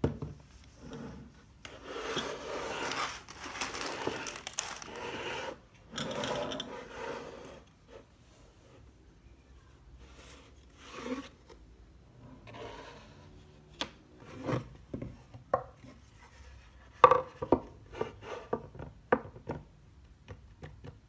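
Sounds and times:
wood sliding on tabletop: 4.9s - 8.1s, 12.4s - 13.2s
wooden knocks and taps: 17.0s - 17.7s, 18.5s - 21.0s.

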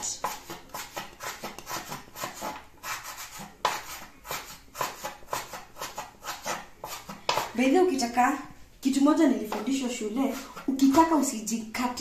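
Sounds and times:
cleaver chopping on wooden board: 3.7s - 7.5s.

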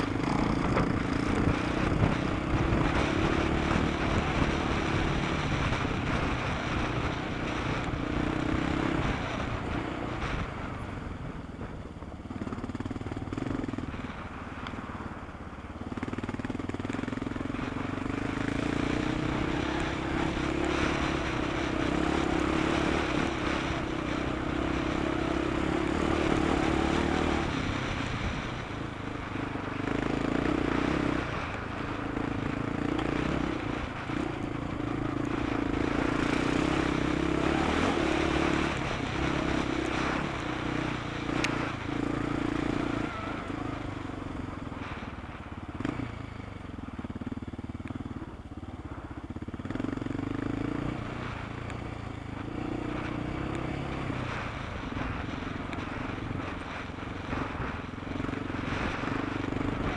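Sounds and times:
rally car engine running hard: 0.0s - 10.9s, 54.2s - 59.9s.

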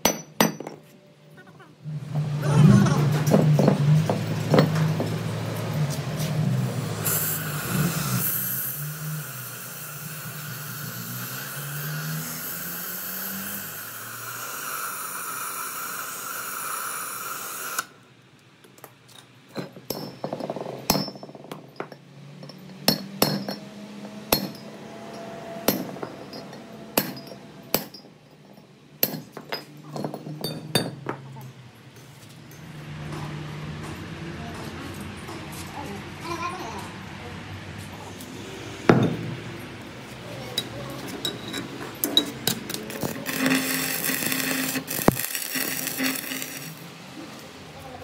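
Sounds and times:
sharp metallic clinks and taps: 3.2s - 5.9s, 18.6s - 34.1s, 40.6s - 46.4s.

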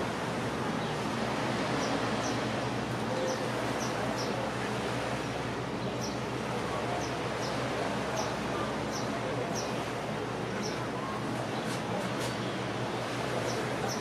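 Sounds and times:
small birds chirping: 6.0s - 6.2s, 8.2s - 9.8s, 10.6s - 10.9s.

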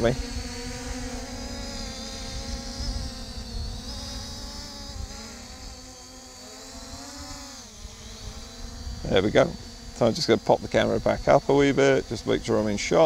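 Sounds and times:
drone propellers buzzing: 0.0s - 13.0s.

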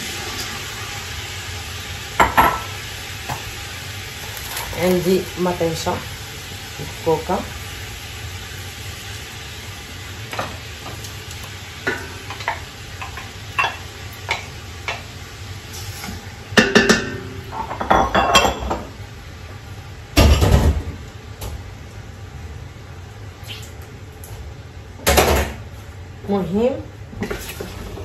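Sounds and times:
meat sizzling in oil: 0.0s - 20.5s
utensils clattering: 4.2s - 5.2s.

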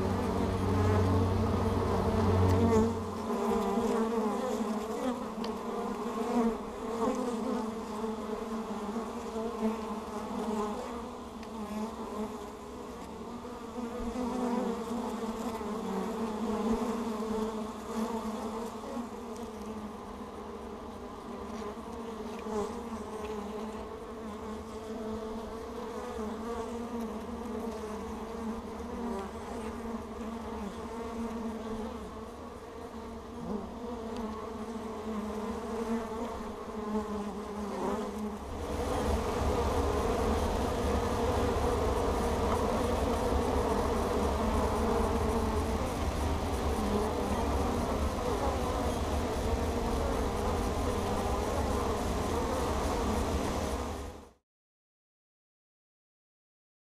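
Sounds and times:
deeper hum: 0.0s - 3.5s
honeybees buzzing: 0.0s - 54.3s.

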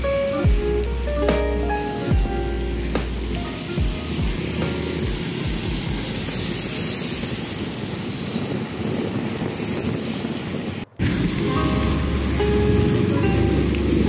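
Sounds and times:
road and traffic noise: 0.0s - 14.0s
wind rushing on microphone: 3.0s - 14.0s.

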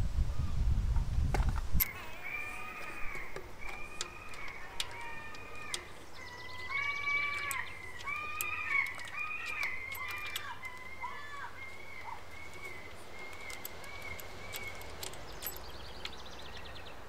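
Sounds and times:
sharp clicks: 1.8s - 16.9s
birds calling: 1.8s - 17.0s.

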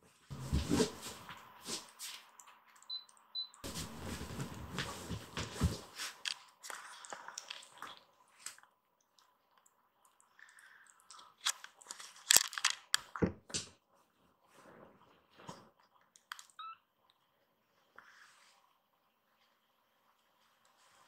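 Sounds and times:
kittens rustling on blanket: 0.3s - 2.3s, 3.6s - 8.5s.

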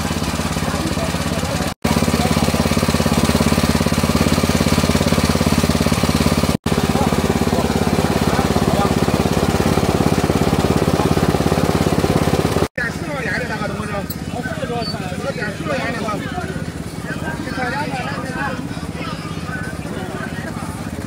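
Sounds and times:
electric grinding mill humming: 0.0s - 12.7s.

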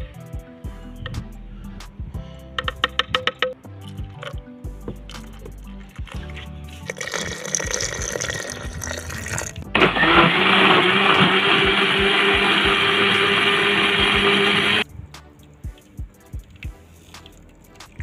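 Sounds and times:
liquid pouring into blender jar: 6.1s - 9.6s
blender motor running: 9.8s - 14.8s.

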